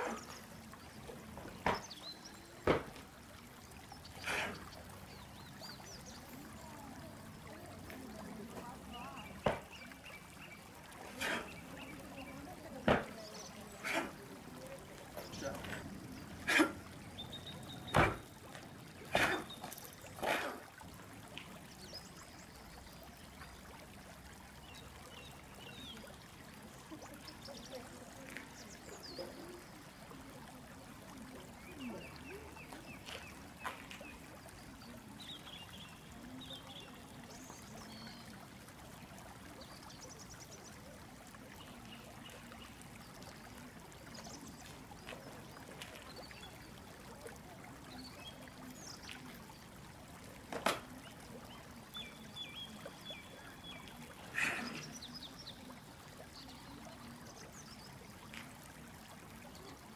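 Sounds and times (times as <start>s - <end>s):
birds chirping: 0.0s - 3.0s, 3.7s - 7.6s, 8.2s - 20.6s, 50.5s - 58.3s.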